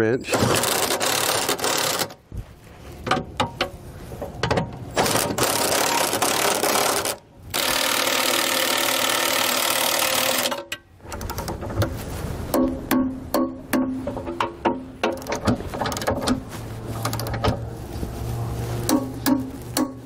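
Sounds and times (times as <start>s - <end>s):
cordless impact wrench running: 0.4s - 2.2s, 5.0s - 10.6s.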